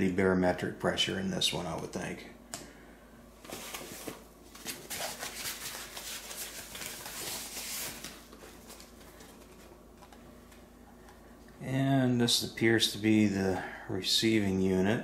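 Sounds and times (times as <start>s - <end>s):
foam packing wrap crinkling: 3.5s - 9.7s.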